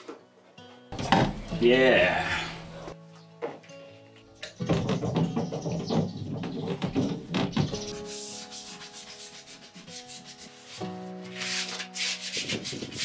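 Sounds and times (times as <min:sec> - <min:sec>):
background music with held tones: 0:00.0 - 0:13.0
cloth rag rubbing wood: 0:07.8 - 0:13.0.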